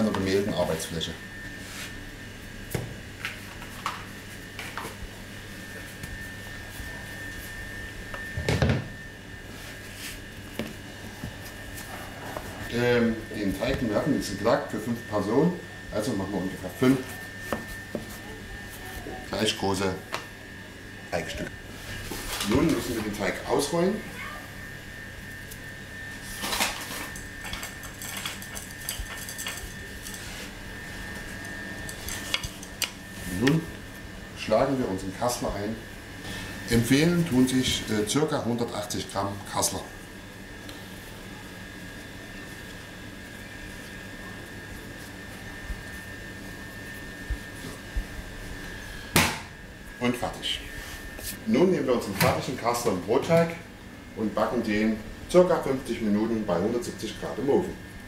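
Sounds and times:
steady hum with high whine: 0.0s - 58.0s
hands rubbing flour rustle: 1.6s - 2.0s, 9.4s - 12.7s.

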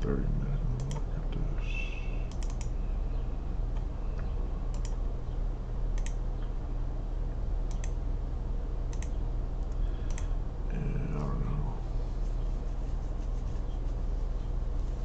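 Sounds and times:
low electrical hum: 0.0s - 15.0s
computer mouse clicking: 2.3s - 2.8s, 3.7s - 5.0s, 5.9s - 6.2s, 7.7s - 8.0s, 8.9s - 10.3s.

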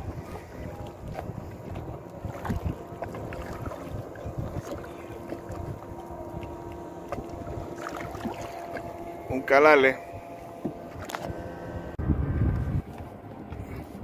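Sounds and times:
water slapping against boat hull: 0.0s - 9.6s, 10.4s - 11.4s
wind buffeting microphone: 0.0s - 14.0s.

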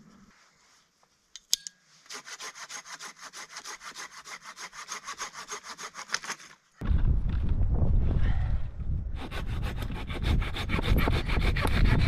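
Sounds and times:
hand saw cutting wood: 2.1s - 6.6s, 9.2s - 12.0s.

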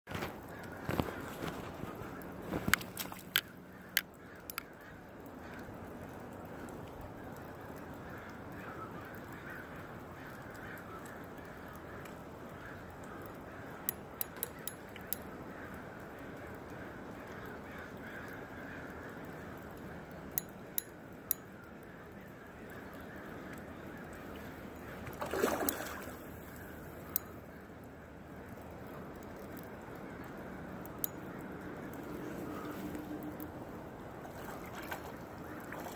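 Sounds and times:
fish thrashing and splashing: 0.2s - 3.5s, 25.1s - 26.5s.

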